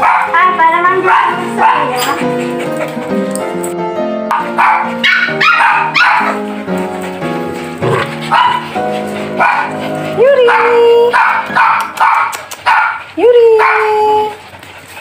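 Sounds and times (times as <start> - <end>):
background music: 0.0 - 12.3
puppies yipping and barking: 0.0 - 15.0
puppy drawn-out cry: 4.3 - 6.5.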